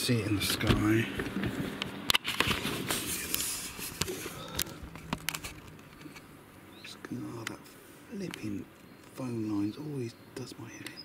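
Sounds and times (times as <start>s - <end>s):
camera handling clicks and knocks: 4.0s - 6.2s.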